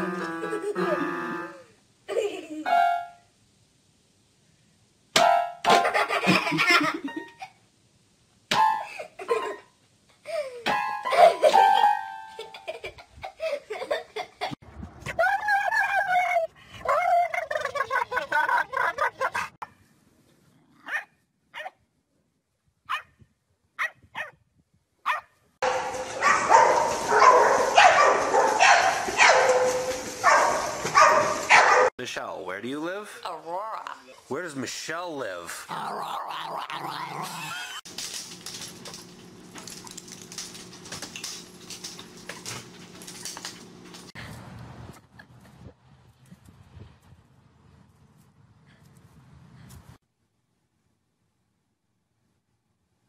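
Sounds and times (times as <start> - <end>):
electrical hum: 37.3 - 44.2
dog claws clicking on floor: 37.9 - 44.1.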